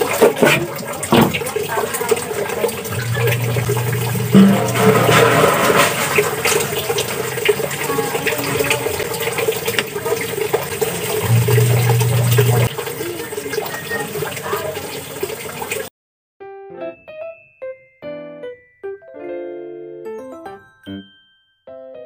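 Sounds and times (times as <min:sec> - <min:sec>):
running water: 0:00.0 - 0:15.9
low hum: 0:02.9 - 0:07.6, 0:11.2 - 0:12.7.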